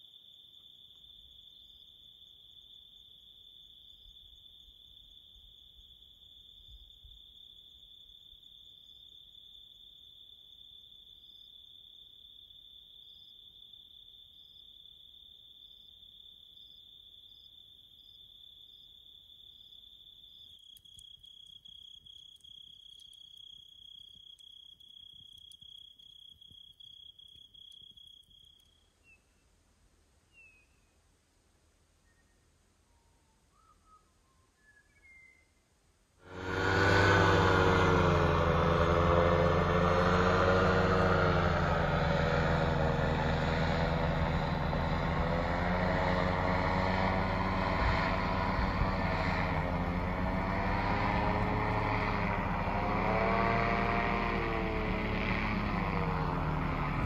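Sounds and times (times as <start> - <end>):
crickets trilling: 0.0 - 29.2
campfire crackling: 20.5 - 28.7.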